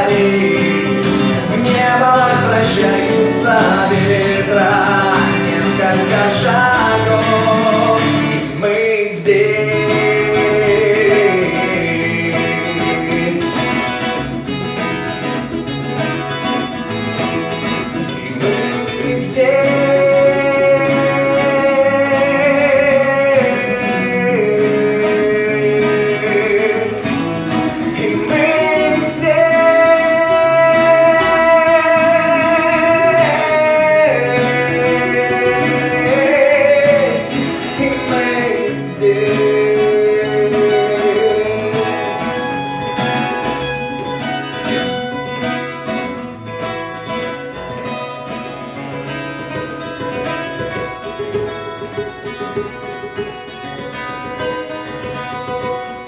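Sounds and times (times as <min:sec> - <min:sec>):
man singing: 0:00.0 - 0:14.9, 0:17.2 - 0:46.3
acoustic guitar picking: 0:00.0 - 0:56.0
acoustic guitar strumming: 0:00.0 - 0:56.0.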